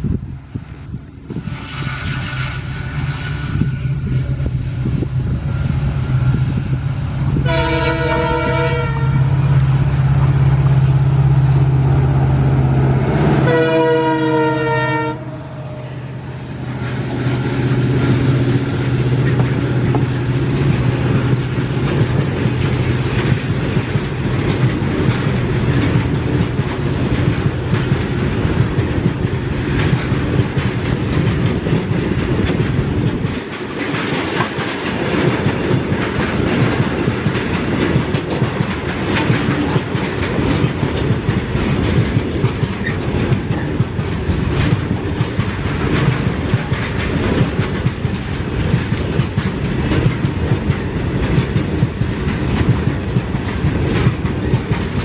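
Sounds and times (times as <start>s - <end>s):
diesel locomotive engine drone: 0.0s - 55.0s
train wheel and rail noise: 0.0s - 55.0s
multi-tone train horn: 1.4s - 4.8s, 7.4s - 21.0s.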